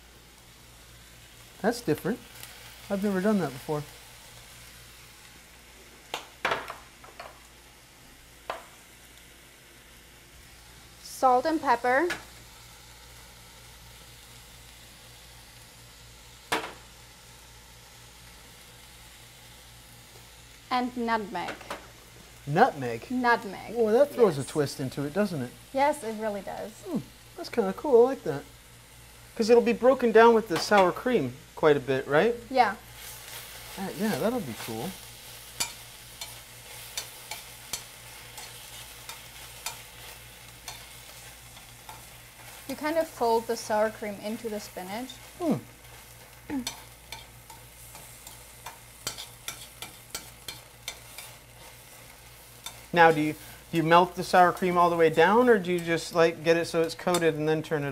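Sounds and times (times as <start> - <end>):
food sizzling in a pan: 0.0 - 57.9
tongs scraping metal pan: 32.9 - 43.4, 45.1 - 57.4.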